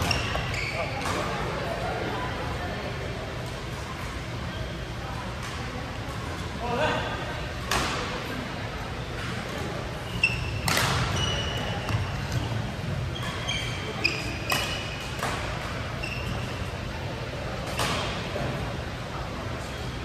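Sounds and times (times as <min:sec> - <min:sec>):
shoes squeaking on court: 0:00.0 - 0:01.5, 0:09.9 - 0:16.9.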